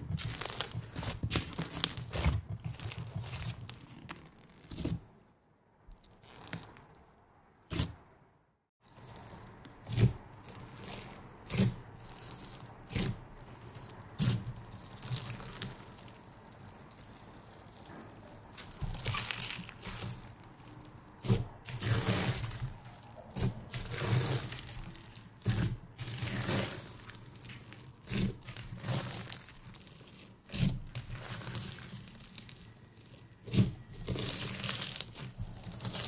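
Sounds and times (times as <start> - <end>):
slime squelching and crackling: 0.0 - 5.1, 8.8 - 36.0.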